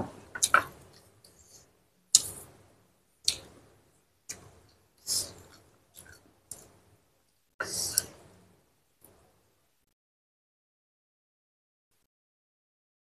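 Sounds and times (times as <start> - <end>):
person chewing food: 0.3 - 2.4, 4.3 - 6.8, 7.6 - 8.2.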